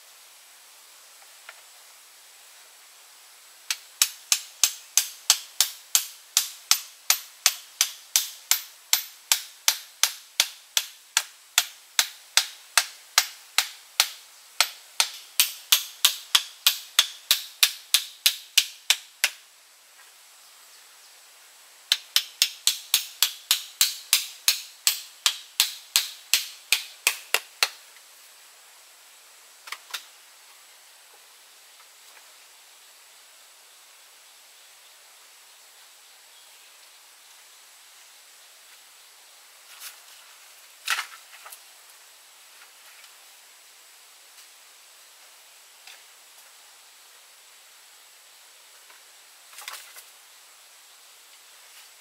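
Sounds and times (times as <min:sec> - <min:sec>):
fast rhythmic sharp knocks: 0:03.7 - 0:19.4, 0:21.9 - 0:27.8.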